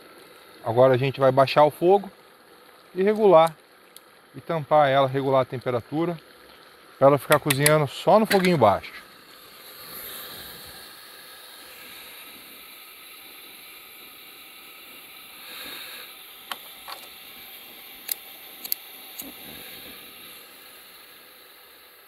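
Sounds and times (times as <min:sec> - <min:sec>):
broth boiling: 0:00.0 - 0:22.0
fire hissing: 0:00.0 - 0:22.0
sharp clicks: 0:18.0 - 0:19.3.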